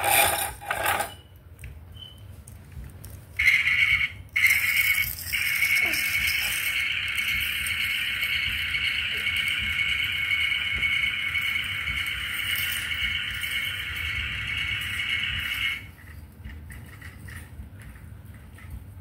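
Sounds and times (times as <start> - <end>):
toy vacuum cleaner whirring: 3.4 - 16.1.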